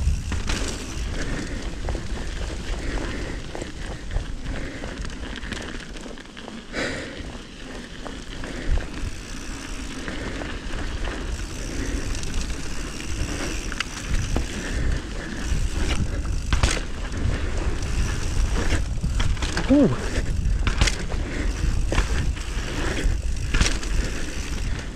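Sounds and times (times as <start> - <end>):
bike tyres rolling on gravel: 0.0 - 24.9
clicks and knocks of stones: 10.6 - 24.8
wind rushing over microphone: 11.3 - 24.9.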